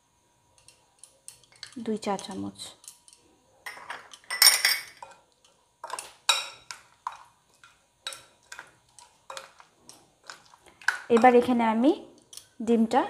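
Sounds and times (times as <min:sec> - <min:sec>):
metal spoon clinking against glass: 0:03.7 - 0:05.2.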